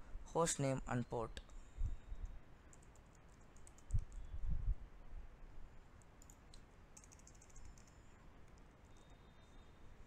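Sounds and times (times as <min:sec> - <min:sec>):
keyboard keys clicking: 0:07.0 - 0:09.0.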